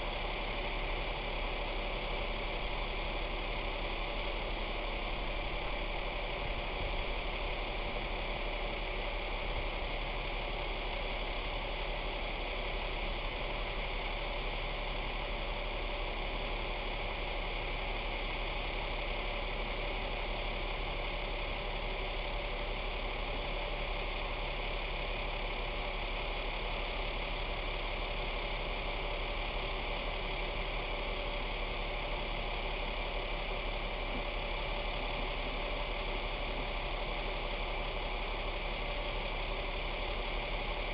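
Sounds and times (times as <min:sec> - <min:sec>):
truck engine idling: 0:00.0 - 0:40.9.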